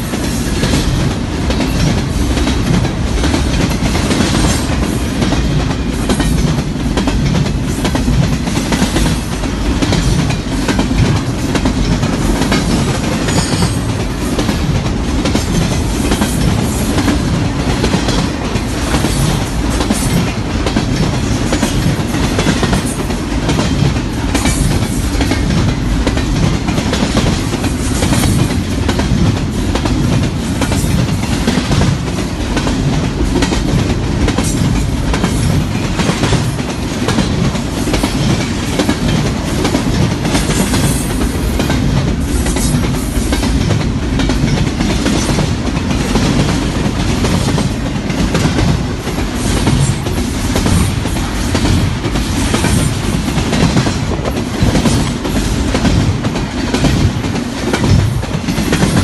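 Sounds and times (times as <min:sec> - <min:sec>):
freight train rumbling past: 0:00.0 - 0:59.0.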